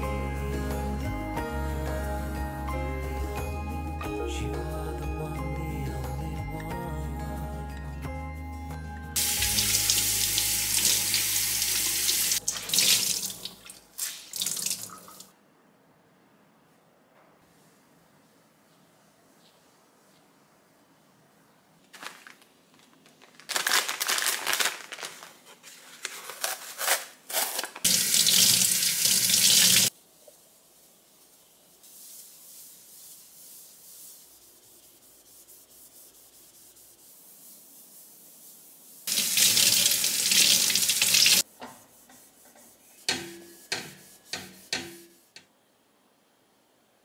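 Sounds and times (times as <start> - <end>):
kitchen tap running: 9.2 - 15.3, 27.9 - 29.9, 39.1 - 41.4
cloth rubbing on countertop: 29.9 - 40.8, 41.4 - 45.4.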